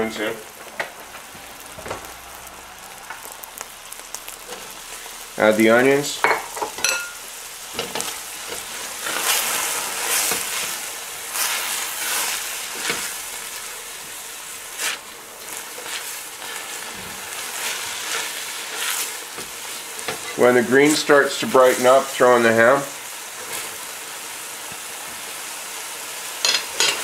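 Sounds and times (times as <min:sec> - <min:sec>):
vegetables sizzling in hot oil: 0:00.0 - 0:27.0
spatula scraping pan: 0:06.2 - 0:13.3, 0:14.7 - 0:22.5.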